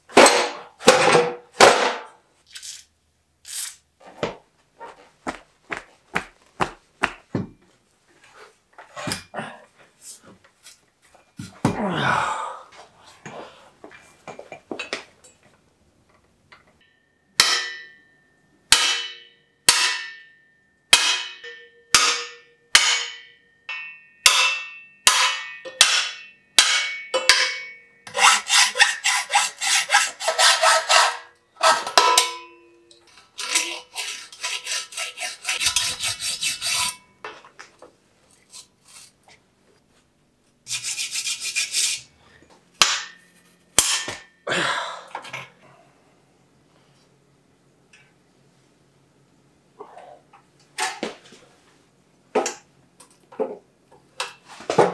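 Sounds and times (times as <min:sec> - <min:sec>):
hammer striking metal: 0:16.8 - 0:28.9, 0:30.3 - 0:33.6, 0:42.8 - 0:44.4.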